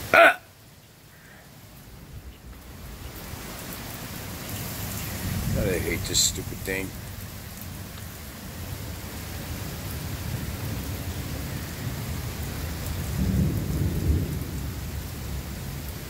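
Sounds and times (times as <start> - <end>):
heavy rain pouring: 0.0 - 16.0
thunder rumble: 1.9 - 8.3, 13.0 - 16.0.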